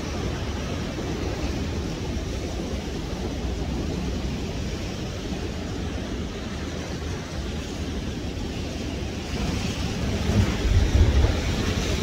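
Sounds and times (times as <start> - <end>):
ocean surf breaking on shore: 0.0 - 12.0.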